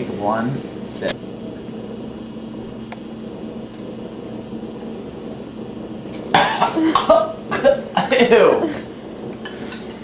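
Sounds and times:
low room hum: 0:00.0 - 0:10.0.

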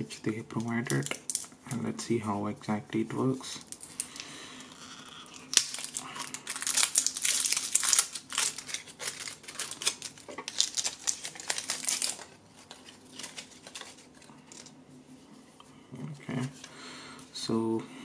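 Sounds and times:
crinkly rustling: 0:03.6 - 0:14.8.

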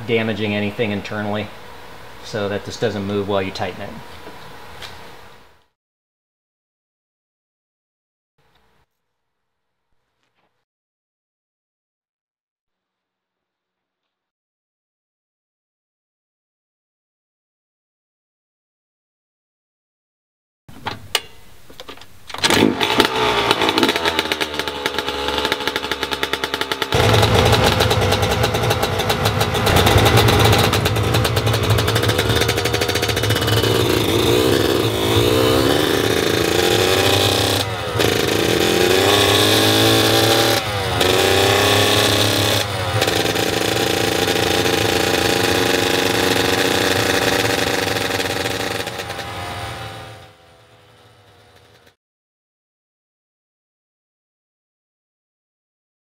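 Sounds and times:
two-stroke engine revving: 0:22.4 - 0:52.0.

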